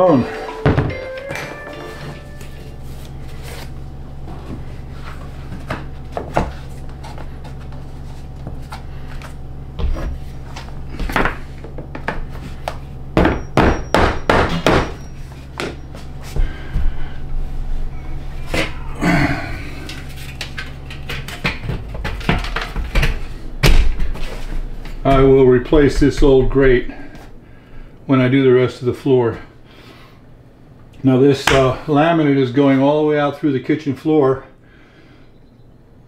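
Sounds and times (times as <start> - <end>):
low hum: 0.0 - 28.1
hammer knocking on metal duct: 13.2 - 15.0.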